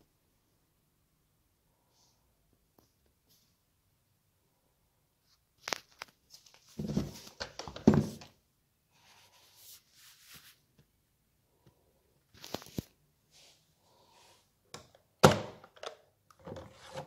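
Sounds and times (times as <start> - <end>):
faint rustling: 8.9 - 10.9.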